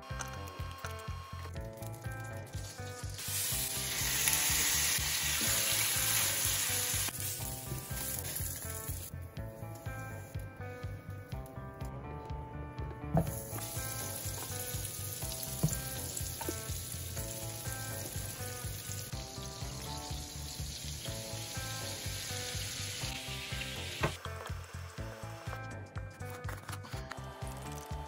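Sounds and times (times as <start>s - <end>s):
soft background music: 0.0s - 28.0s
butter sizzling in a frying pan: 2.6s - 9.1s, 13.2s - 24.1s.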